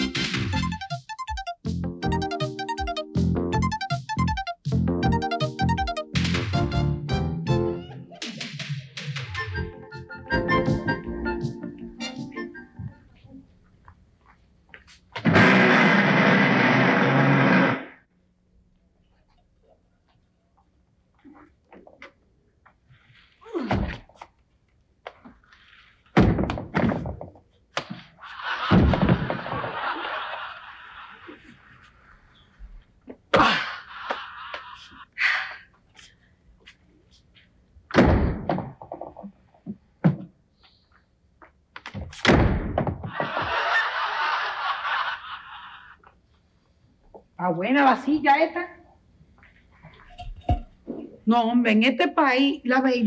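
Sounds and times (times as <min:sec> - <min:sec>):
knocks and thumps: 0:26.2 - 0:27.9.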